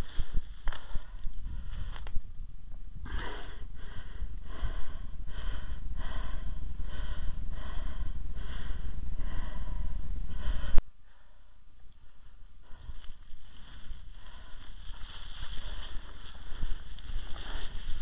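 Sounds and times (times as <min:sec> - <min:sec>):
person panting hard: 0:00.0 - 0:02.1, 0:03.0 - 0:18.0
wind rumble on microphone: 0:00.0 - 0:10.3.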